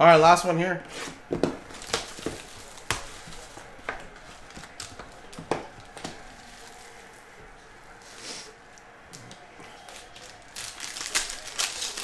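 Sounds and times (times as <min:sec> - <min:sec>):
cellophane crinkling: 0:01.4 - 0:07.5, 0:09.7 - 0:12.0.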